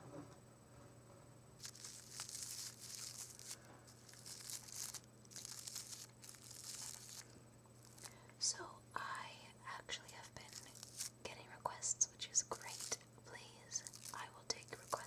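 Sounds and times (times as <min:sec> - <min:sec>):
flowers rustling and crinkling: 0:01.6 - 0:08.2, 0:10.3 - 0:11.2, 0:12.4 - 0:13.1, 0:13.7 - 0:15.0.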